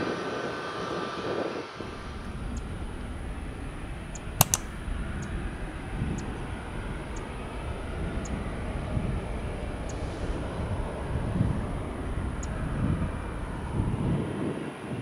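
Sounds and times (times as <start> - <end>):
jet engines rumbling: 0.2 - 15.0
sharp clicks: 4.1 - 5.4.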